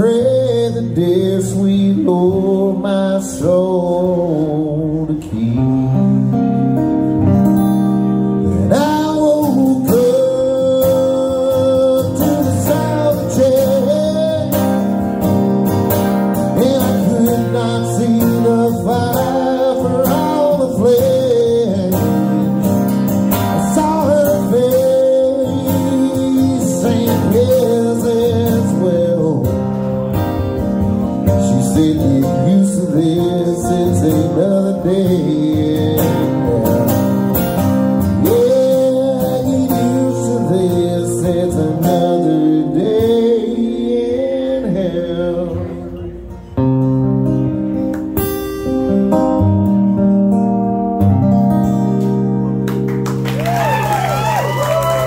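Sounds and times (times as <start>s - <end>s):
man singing: 0.0s - 7.1s, 8.5s - 15.2s, 16.3s - 29.8s, 31.2s - 37.3s, 37.9s - 46.2s
strummed acoustic guitar: 0.0s - 53.3s.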